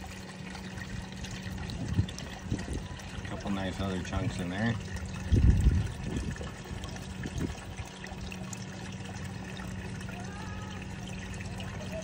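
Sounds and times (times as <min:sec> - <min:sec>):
water running over sluice box: 0:00.0 - 0:12.0.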